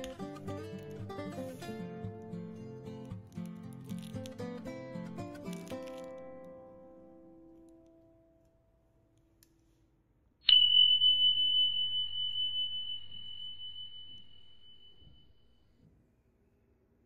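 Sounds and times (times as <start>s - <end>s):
high bell-like ringing tone: 10.4s - 15.8s.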